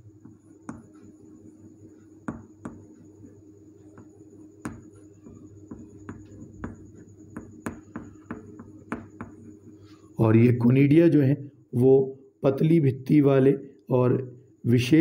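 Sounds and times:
chalk tapping on chalkboard: 0.2s - 9.6s.

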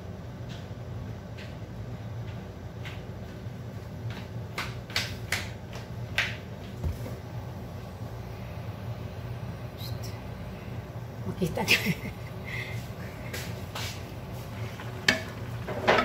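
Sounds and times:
steady low hum: 0.0s - 16.0s
stew simmering with pops: 12.3s - 16.0s.

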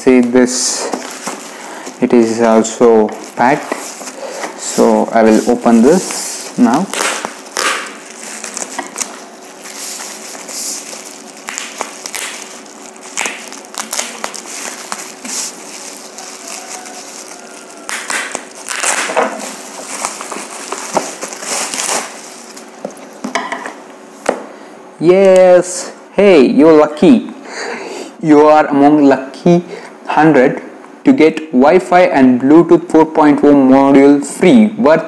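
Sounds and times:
faint steady hum: 0.0s - 35.0s
bubble wrap crinkling and tearing: 0.1s - 23.3s.

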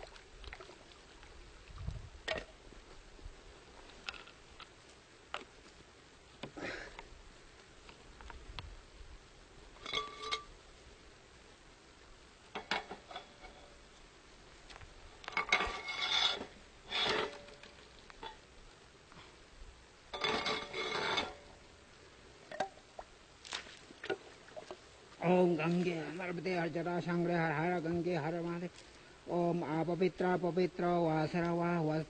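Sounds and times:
metal scraping and clinking on ice: 9.8s - 10.5s, 15.3s - 18.4s, 20.1s - 21.6s.

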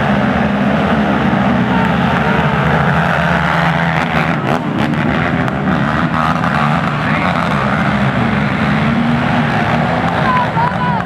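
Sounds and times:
racing quad engines revving: 0.0s - 11.0s.

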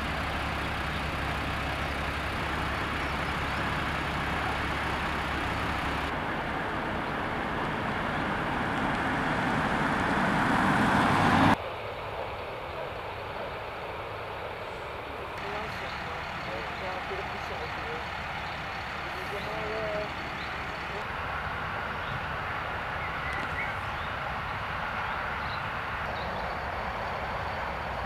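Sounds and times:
police car driving up: 0.0s - 11.6s
faint outdoor background: 0.0s - 28.0s
vehicle engine idling: 0.0s - 28.0s.

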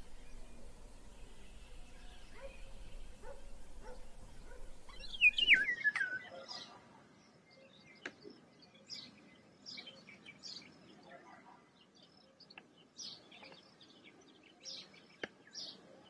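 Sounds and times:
bird singing fluting whistle: 0.0s - 6.3s
faint bird chirps: 0.0s - 16.0s.

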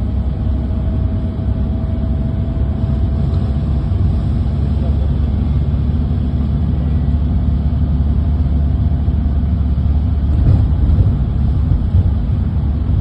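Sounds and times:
car road rumble: 0.0s - 13.0s.

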